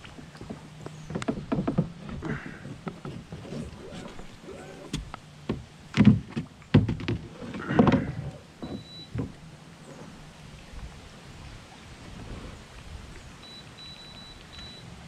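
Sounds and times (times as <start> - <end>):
short high beep: 8.6 - 9.1, 13.4 - 14.9.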